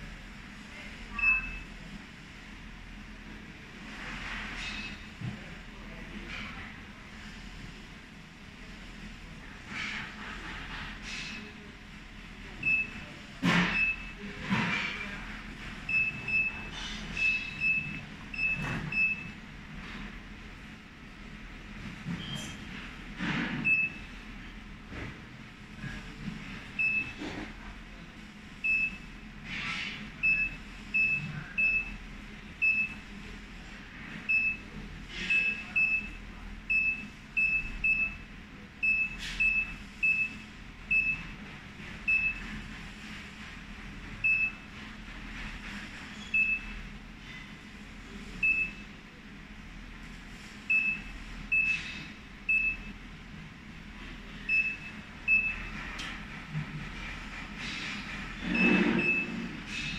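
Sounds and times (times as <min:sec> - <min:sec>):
short high beeps: 0:01.2 - 0:01.6.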